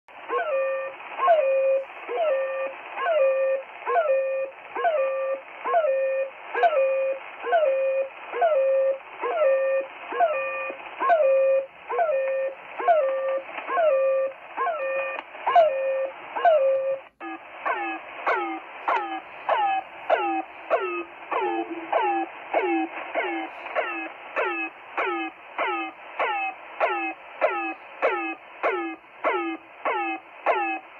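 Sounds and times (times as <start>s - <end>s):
radio hiss: 0.2s - 30.9s
radio signal honking and falling tone: 9.5s - 30.8s
faster falling radio tones: 17.2s - 30.8s.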